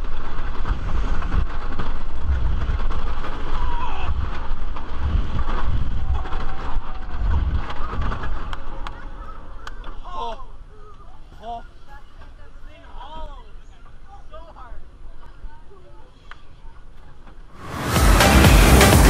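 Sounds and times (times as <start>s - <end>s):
wind buffeting microphone: 0.0s - 9.5s
roller coaster train rumbling on track: 0.0s - 9.7s
riders shouting: 3.5s - 4.5s.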